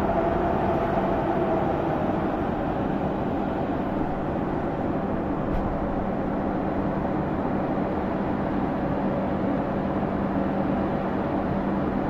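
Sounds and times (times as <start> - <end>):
electric locomotive humming: 0.0 - 11.6.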